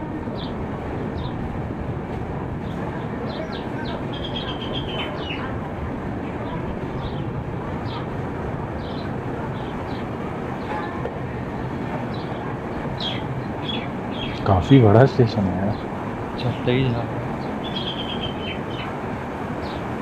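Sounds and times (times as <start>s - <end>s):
train rolling slowly: 0.0s - 20.0s
bird chirps: 3.4s - 5.4s, 13.0s - 14.5s, 17.4s - 18.9s.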